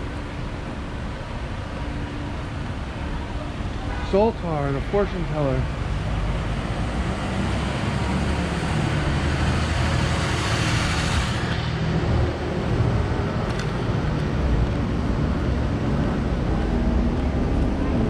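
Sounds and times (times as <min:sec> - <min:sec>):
steady low traffic rumble: 0:00.0 - 0:18.0.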